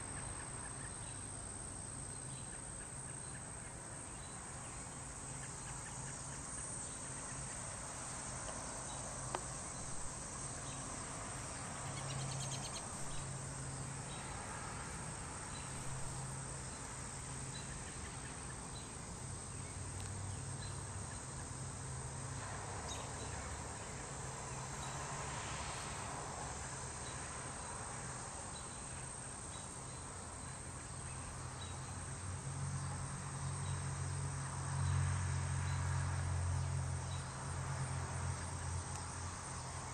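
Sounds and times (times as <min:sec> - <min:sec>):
insect chorus trilling: 0:00.0 - 0:39.9
faint regular ticks: 0:07.2 - 0:10.1, 0:38.7 - 0:39.2.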